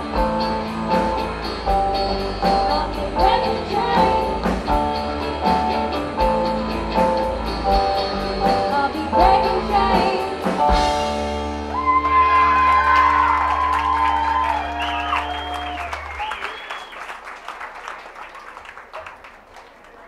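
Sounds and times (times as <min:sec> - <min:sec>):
steady drum beat: 0:00.0 - 0:11.7
electric guitar: 0:00.0 - 0:15.8
keyboard: 0:00.0 - 0:16.2
female voices singing: 0:02.5 - 0:04.6, 0:08.4 - 0:10.6.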